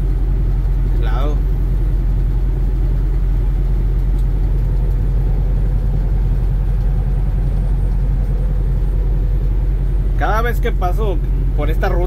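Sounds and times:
diesel engine droning: 0.0s - 12.0s
road noise: 0.0s - 12.0s.

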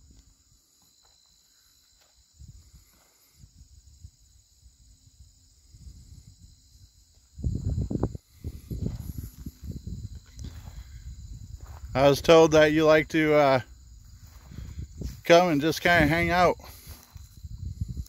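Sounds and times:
insects chirring: 0.0s - 18.0s
low rumbling on microphone: 7.4s - 12.0s.

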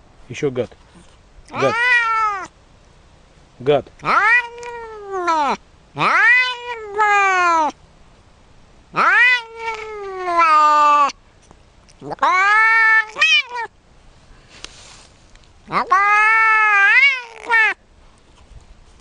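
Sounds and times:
cat meowing: 1.5s - 2.5s, 4.0s - 7.8s, 9.0s - 11.2s, 12.0s - 13.7s, 15.7s - 17.8s.

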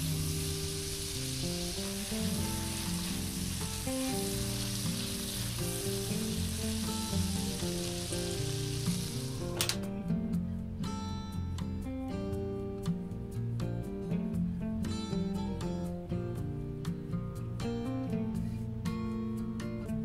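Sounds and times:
sauce sizzling in a frying pan: 0.0s - 9.6s
instrumental music: 0.0s - 20.0s.

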